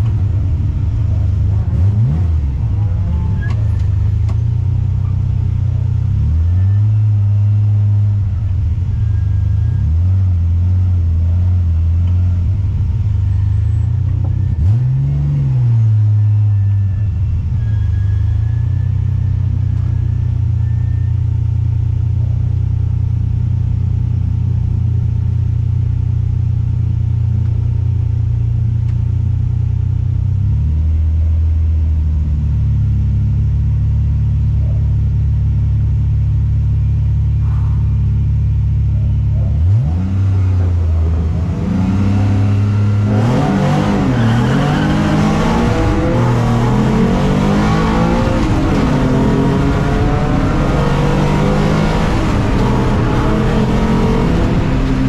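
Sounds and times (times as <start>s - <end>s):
race car engine revving: 0.0s - 17.3s, 36.8s - 55.0s.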